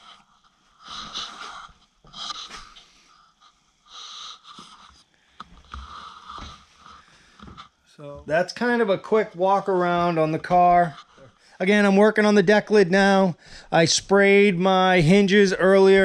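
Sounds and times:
person breathing noisily: 0.0s - 7.7s, 13.4s - 13.7s.

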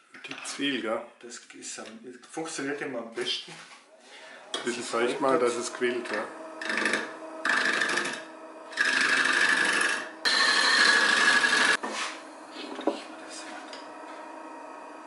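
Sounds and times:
wood lathe running: 4.4s - 15.0s
sanding wood on a lathe: 4.7s - 13.6s.

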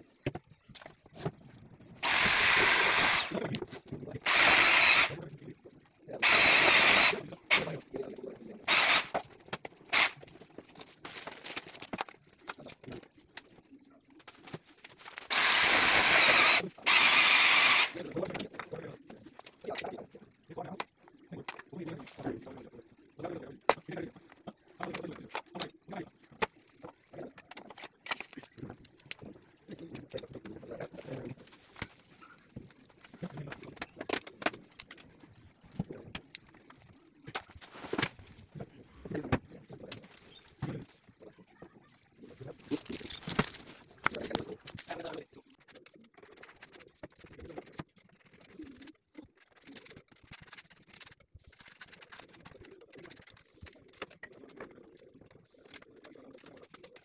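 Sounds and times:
electric drill whining: 2.0s - 3.4s, 4.2s - 5.1s, 6.2s - 7.7s, 8.7s - 9.1s, 15.3s - 18.0s.

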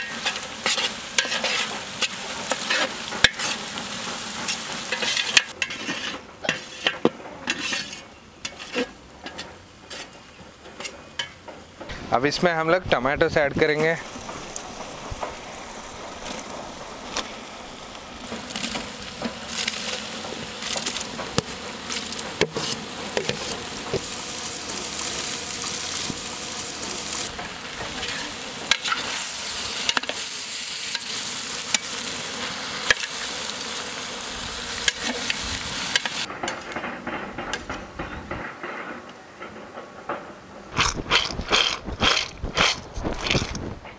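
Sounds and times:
metal ladle scraping a pot: 0.0s - 11.4s, 18.2s - 24.1s
tomatoes sizzling in a pot: 0.0s - 36.3s.

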